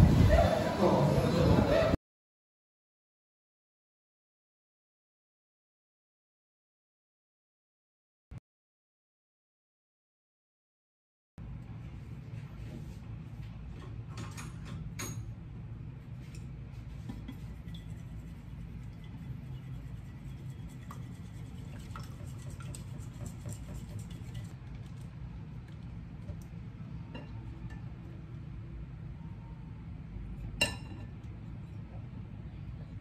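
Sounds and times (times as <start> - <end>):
steady low hum: 11.4 - 33.0
chopsticks beating egg in bowl: 17.2 - 24.6.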